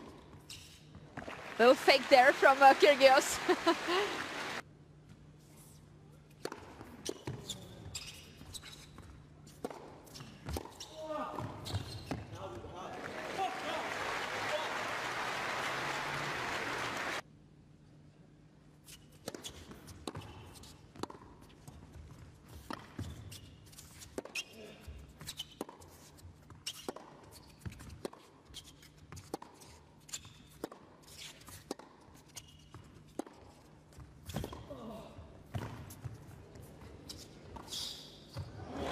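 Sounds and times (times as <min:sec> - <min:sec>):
low hum of hall: 0:00.0 - 0:38.9
shoes squeaking on court: 0:06.4 - 0:12.4, 0:18.9 - 0:34.8, 0:35.5 - 0:38.6.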